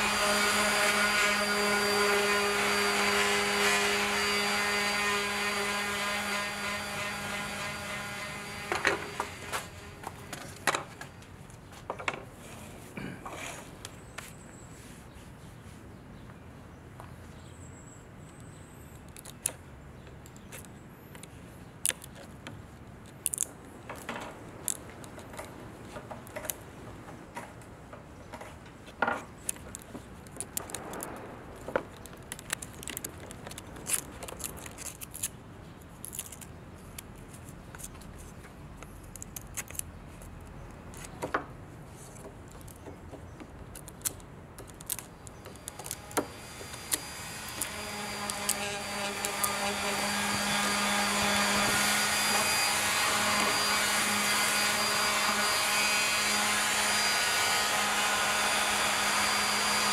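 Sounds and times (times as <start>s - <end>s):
chisel scraping wood: 12.4s - 13.7s.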